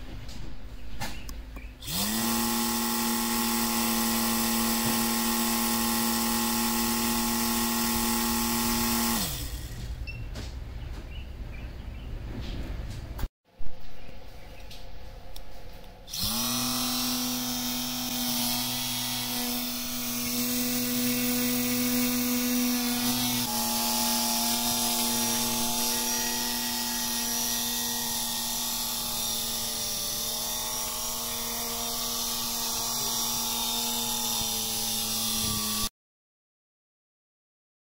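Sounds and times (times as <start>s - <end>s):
micro motor buzzing whine: 1.8s - 9.9s, 16.1s - 35.9s.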